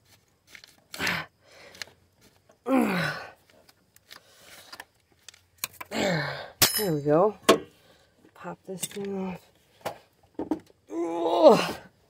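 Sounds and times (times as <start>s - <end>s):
man straining groan: 2.6s - 3.4s, 5.9s - 6.6s, 10.9s - 11.9s.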